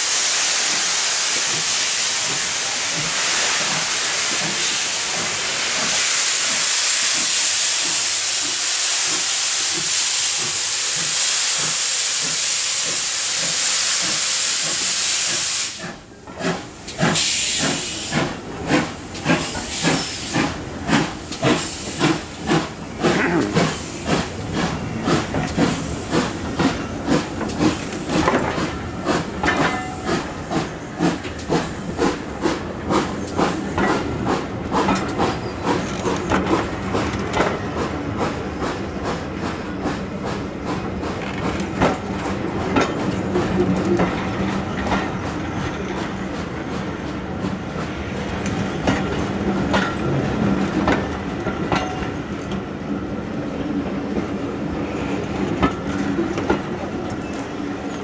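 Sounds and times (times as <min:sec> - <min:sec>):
steam hissing from locomotive: 0:00.0 - 0:37.0
train wheels clicking over rail joints: 0:00.6 - 0:58.0.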